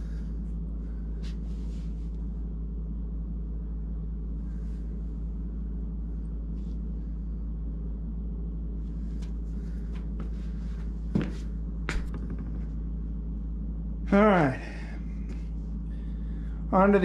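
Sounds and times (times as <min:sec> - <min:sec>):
steady low hum: 0:00.0 - 0:17.0
loud knocks: 0:11.2 - 0:12.8.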